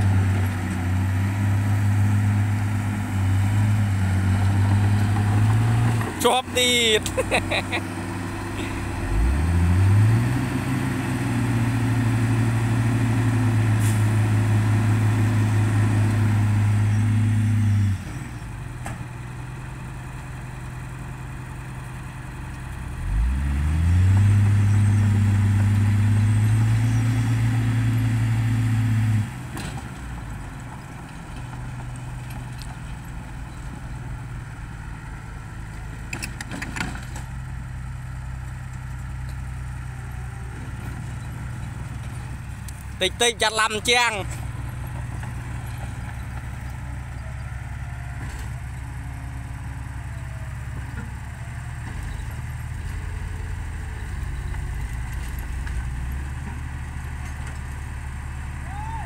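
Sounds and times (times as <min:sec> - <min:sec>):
diesel truck engine revving: 0:00.0 - 0:59.0.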